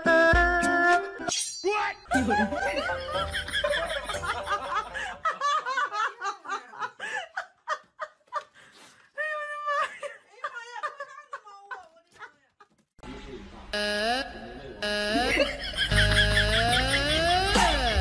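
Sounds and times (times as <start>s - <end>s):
music: 0.0s - 1.3s, 2.2s - 4.8s, 15.9s - 18.0s
person giggling: 2.1s - 5.5s, 15.1s - 18.0s.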